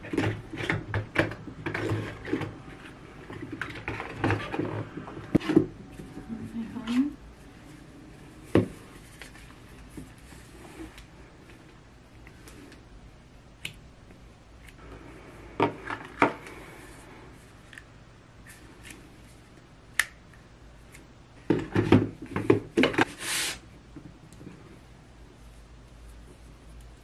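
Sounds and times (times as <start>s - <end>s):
plastic knocks and clatter: 21.4s - 23.1s
short scraping slide: 23.1s - 23.6s.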